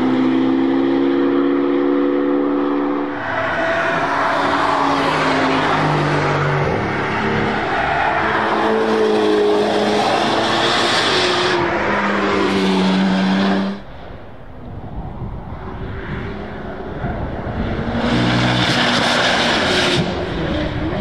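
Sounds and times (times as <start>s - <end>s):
car engine revving through gears: 0.0s - 3.1s, 16.1s - 21.0s.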